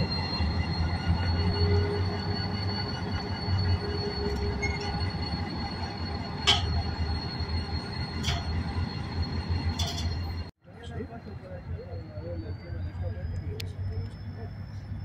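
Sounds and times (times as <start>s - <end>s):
freight train rolling slowly: 0.0s - 15.0s
wheels squealing: 0.0s - 15.0s
sharp clanks from running gear: 9.7s - 10.3s.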